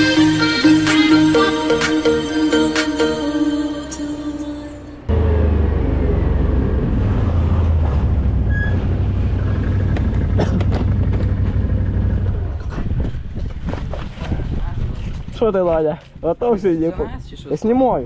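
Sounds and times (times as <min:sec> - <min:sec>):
dirt bike engine running: 0:08.9 - 0:13.8.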